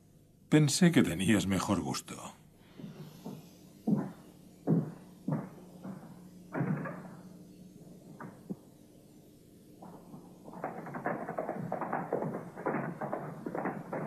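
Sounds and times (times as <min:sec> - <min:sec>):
boot footsteps on wooden floor: 0:02.7 - 0:06.0
light knocks: 0:02.8 - 0:07.2.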